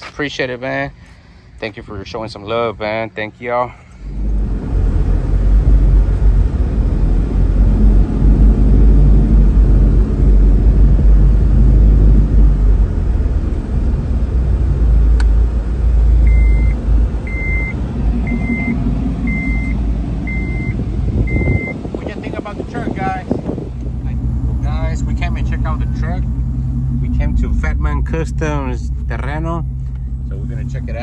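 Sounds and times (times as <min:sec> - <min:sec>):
pickup truck exhaust rumble: 0:03.7 - 0:31.0
short high electronic beeps: 0:16.3 - 0:21.8.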